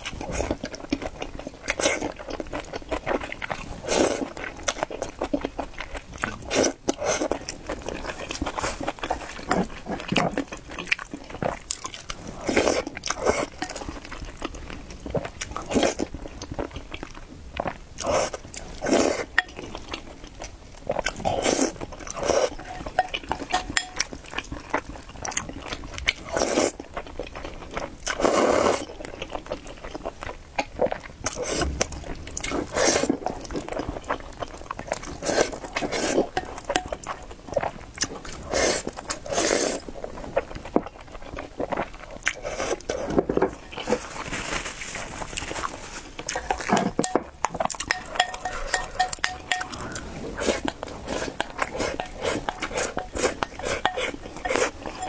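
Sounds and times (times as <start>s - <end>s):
chewing: 0.0s - 55.0s
noodles slurped: 17.6s - 20.2s, 20.8s - 26.9s, 28.0s - 29.0s, 30.8s - 40.5s, 41.4s - 44.2s, 45.6s - 55.0s
wooden spoon scraping ceramic bowl: 22.5s - 24.1s, 47.9s - 55.0s.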